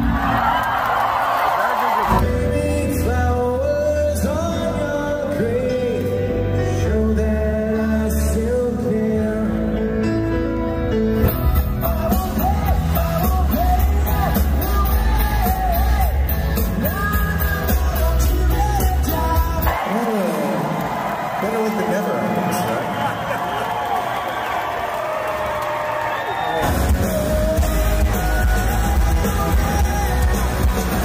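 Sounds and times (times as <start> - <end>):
audience yelling: 0.0 - 2.3, 19.6 - 31.0
live rock band with singer: 2.1 - 20.4, 26.5 - 31.0.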